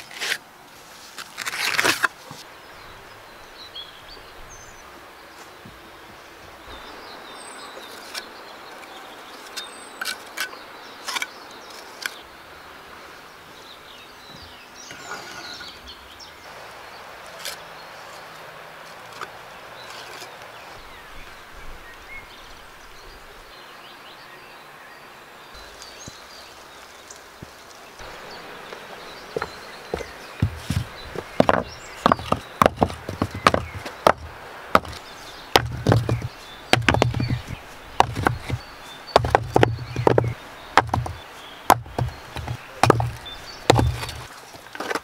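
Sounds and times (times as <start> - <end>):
bricks knocking: 29.4 - 45.0.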